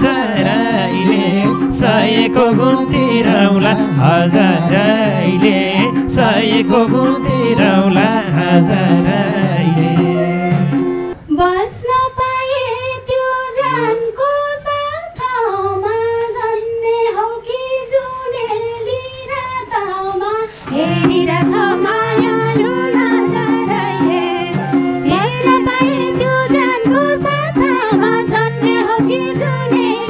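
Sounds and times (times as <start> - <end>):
hand drum strokes: 0.0 - 11.2, 20.5 - 30.0
woman singing into microphone: 0.0 - 30.0.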